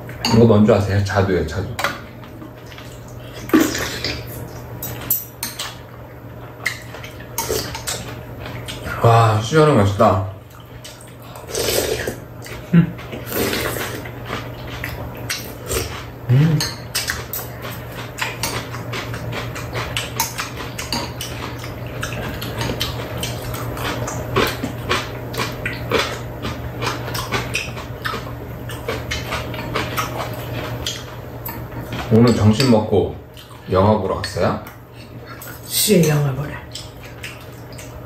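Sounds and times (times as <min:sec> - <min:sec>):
steady low hum: 0:00.0 - 0:38.0
chewing: 0:10.5 - 0:35.7, 0:36.6 - 0:38.0
slurping: 0:11.3 - 0:16.7
utensils clicking against bowls: 0:13.8 - 0:26.2, 0:26.8 - 0:33.5.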